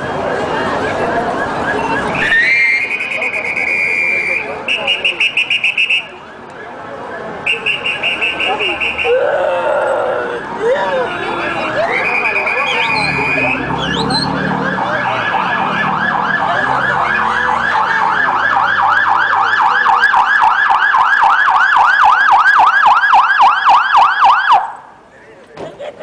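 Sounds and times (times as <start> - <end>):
ambulance siren yelping: 0.0 - 2.9, 8.4 - 24.8.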